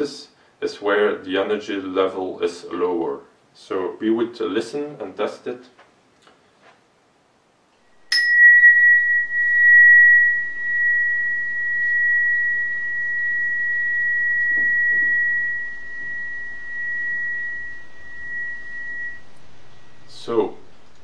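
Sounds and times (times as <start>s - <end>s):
tuning fork ringing high tone: 8.0s - 21.0s
mallet striking tuning fork: 8.1s - 20.1s.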